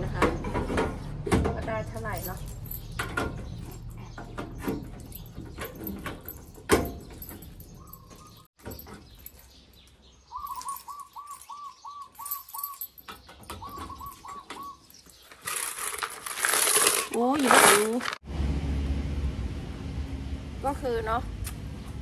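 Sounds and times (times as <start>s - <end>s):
keys jangling in a lock: 1.8s - 16.9s
bird calling: 7.3s - 9.2s, 10.0s - 15.4s.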